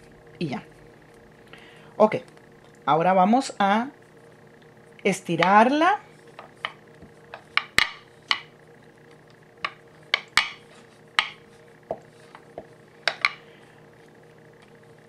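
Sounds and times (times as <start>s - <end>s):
rolling pin rolling on board: 6.3s - 8.5s, 9.6s - 13.4s
rolling pin knocking on board: 6.4s - 8.5s, 9.6s - 10.6s, 11.2s - 13.4s.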